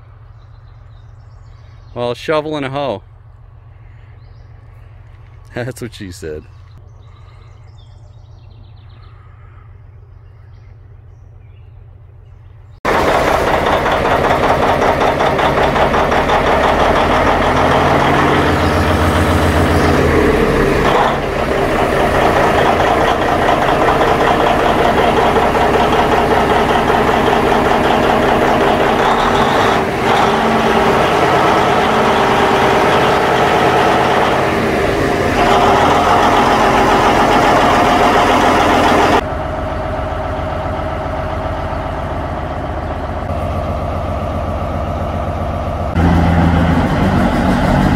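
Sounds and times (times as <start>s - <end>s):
large diesel engine running: 11.8s - 47.9s.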